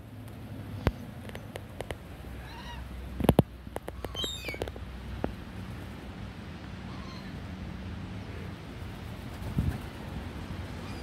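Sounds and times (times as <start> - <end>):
high wavering bird calls: 2.3 - 3.0, 3.8 - 4.7, 6.8 - 7.4, 10.8 - 11.0.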